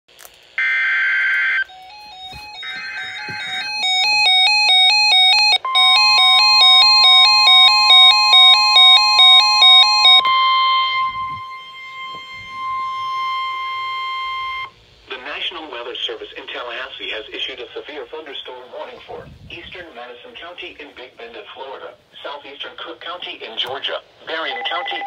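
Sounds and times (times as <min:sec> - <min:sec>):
steady warning alarm tone: 0:00.6 - 0:14.8, 0:24.4 - 0:25.0.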